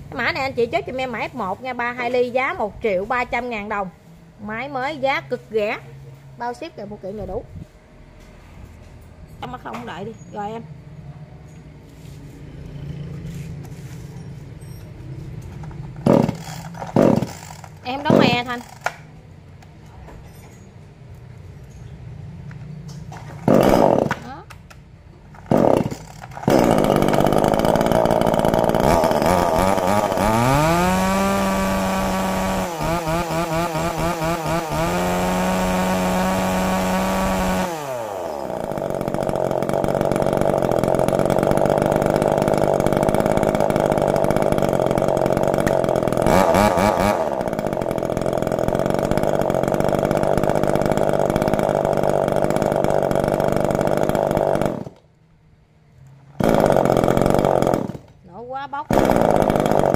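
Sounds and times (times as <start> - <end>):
chainsaw idling and revving: 16.0 - 19.0, 23.2 - 24.5, 25.4 - 55.0, 56.4 - 58.2, 58.8 - 59.9.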